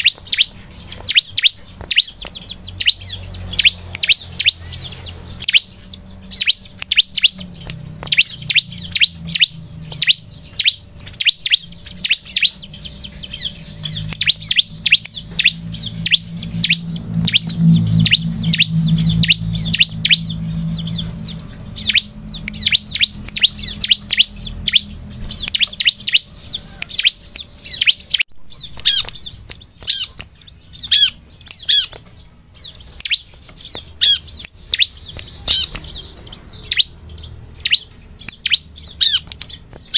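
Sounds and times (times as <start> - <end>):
bird chirping: 0.0 - 39.9
low rumble: 0.6 - 29.4.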